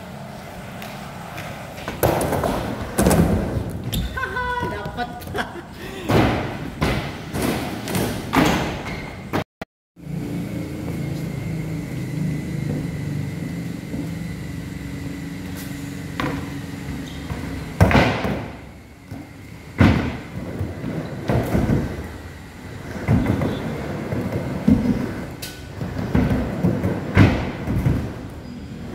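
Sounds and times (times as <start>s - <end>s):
skateboard wheels rolling: 0.0s - 5.6s, 10.1s - 28.9s
skateboards landing and slapping: 1.3s - 9.4s, 17.3s - 22.2s, 22.8s - 28.3s.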